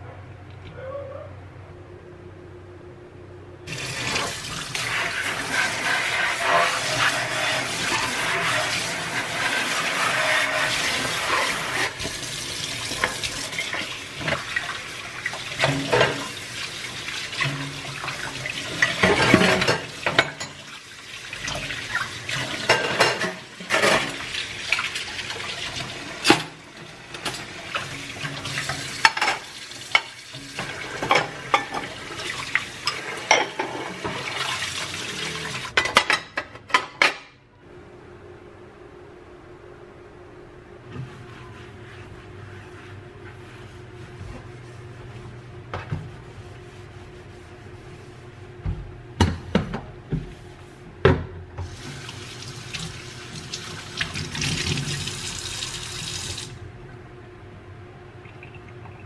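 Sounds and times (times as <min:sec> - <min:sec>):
dishes clattering against steel: 0:18.7 - 0:20.7, 0:22.5 - 0:24.2, 0:29.0 - 0:31.9, 0:32.8 - 0:34.2.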